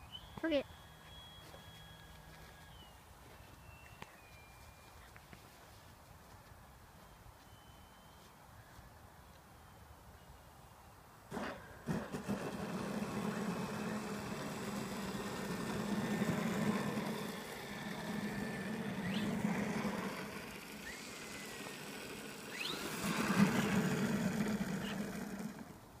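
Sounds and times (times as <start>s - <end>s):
model plane electric motor and propeller: 11.3s - 26.0s.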